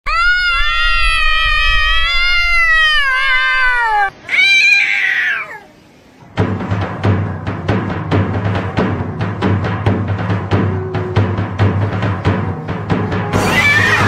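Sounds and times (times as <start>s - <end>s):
cat caterwauling: 0.1s - 5.8s, 13.1s - 14.0s
cat yowling harshly: 0.1s - 5.8s, 13.2s - 14.0s.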